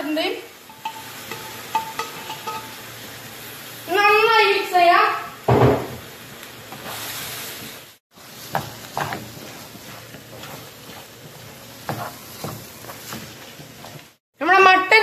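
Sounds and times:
meat sizzling in a frying pan: 0.0 - 14.6
spatula scraping and tapping pan: 0.7 - 2.8, 8.2 - 14.2
loud knock: 5.5 - 6.0.

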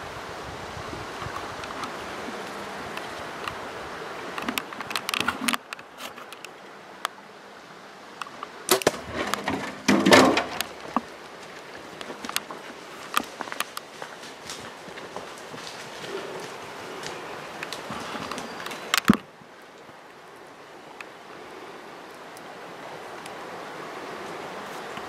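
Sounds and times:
rustling and scuffing in brush: 9.0 - 18.9.

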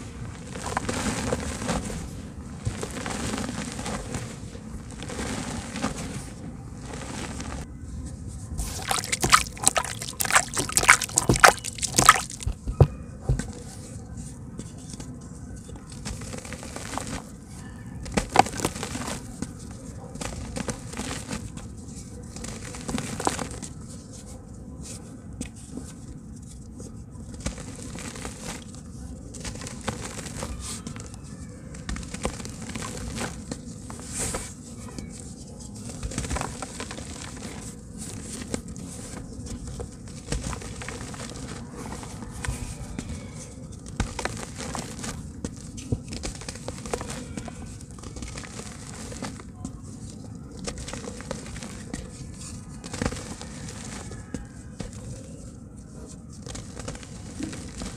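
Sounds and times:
hands crushing wet dirt in water: 8.6 - 12.6, 43.8 - 55.0.

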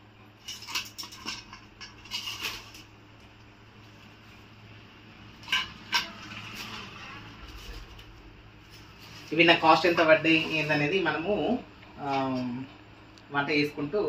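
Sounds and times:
shells scraping against metal bowl: 0.4 - 2.9, 5.3 - 8.1.

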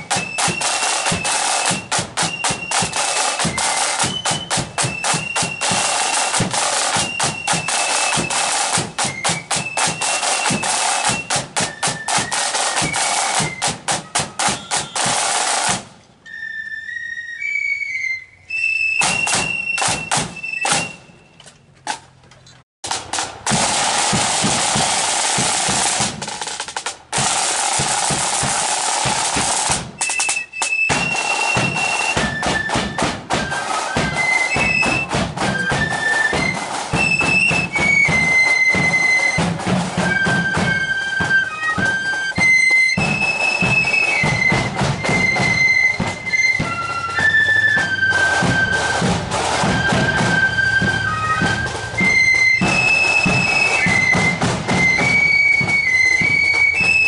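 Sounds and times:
side drum rolls: 0.0 - 16.0, 22.8 - 57.0
flute melody: 0.0 - 21.6, 27.6 - 57.0.

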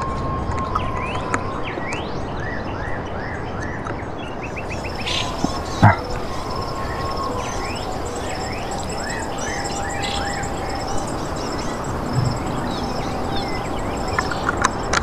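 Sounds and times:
birds chirping: 4.3 - 15.0
insect trill: 4.5 - 15.0.

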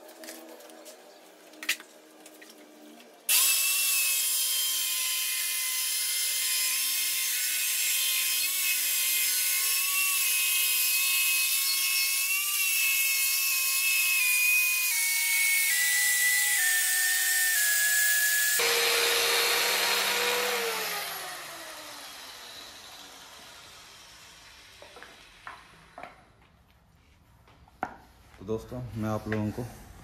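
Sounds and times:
electric cutter whining: 3.3 - 26.2.

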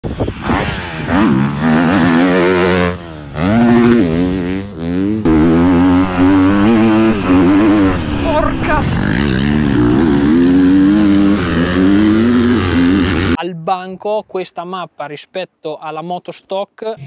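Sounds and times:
motocross bike engine revving: 0.4 - 13.4.

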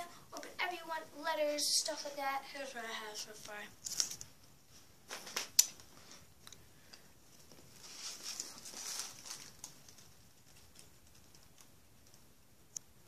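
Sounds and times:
soft rustling: 3.0 - 12.4.

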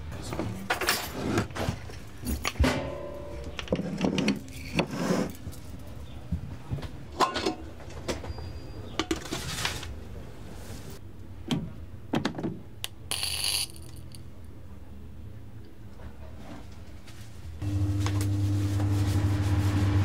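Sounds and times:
utensils and containers clattering: 7.2 - 7.8.

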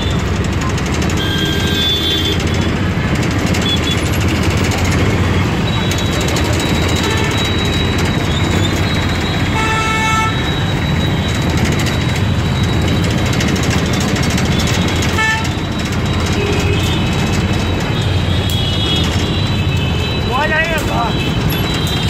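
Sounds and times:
road traffic engine and road noise: 0.0 - 22.0
vehicle horn honking: 1.2 - 2.5, 3.6 - 4.1, 6.8 - 7.8, 9.4 - 10.5, 15.0 - 15.6.

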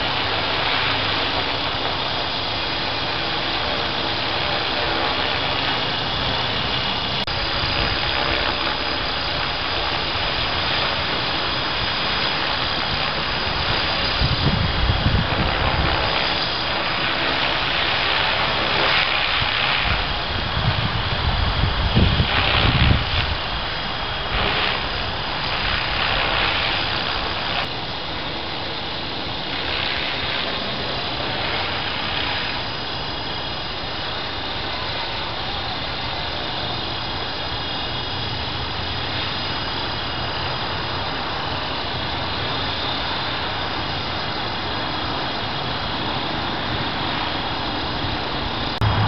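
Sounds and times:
rc helicopter rotor whir: 0.0 - 49.0
strong wind rushing: 5.6 - 17.2, 18.1 - 27.7, 45.5 - 49.0.

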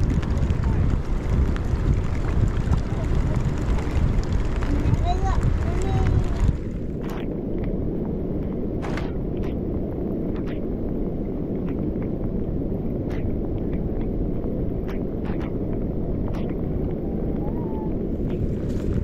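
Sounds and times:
rain tapping on camera: 0.0 - 19.0
wind rumble on microphone: 0.0 - 19.0.

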